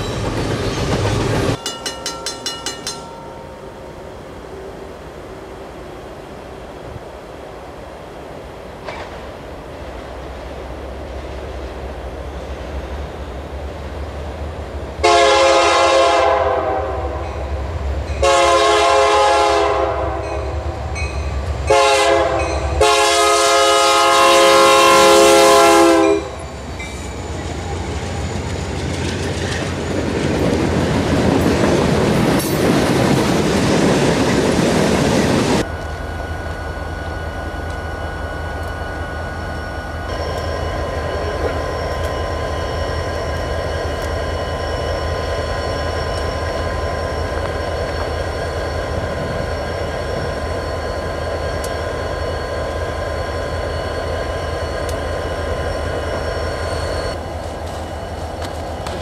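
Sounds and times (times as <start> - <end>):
train engine rumble: 0.0 - 59.0
train wheel noise: 0.0 - 59.0
locomotive air horn: 15.0 - 17.4, 18.2 - 20.8, 21.6 - 26.4.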